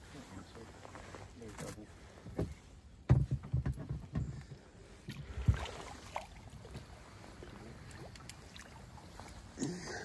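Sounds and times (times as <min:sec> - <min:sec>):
knocks and thumps in boat: 0:02.2 - 0:04.7.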